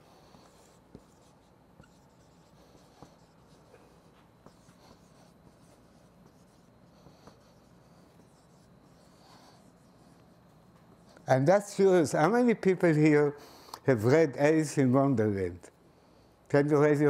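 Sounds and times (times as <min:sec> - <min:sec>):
marker scratching on whiteboard: 0:00.0 - 0:11.6.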